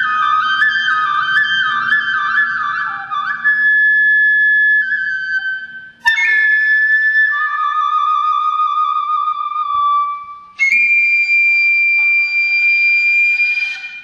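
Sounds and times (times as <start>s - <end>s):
bamboo flute melody: 0.0s - 14.0s.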